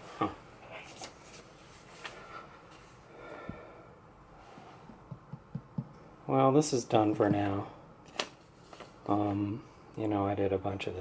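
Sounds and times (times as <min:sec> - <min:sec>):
soft rustles: 0:00.7 - 0:03.0, 0:08.3 - 0:09.4
faint breaths: 0:02.0 - 0:05.1.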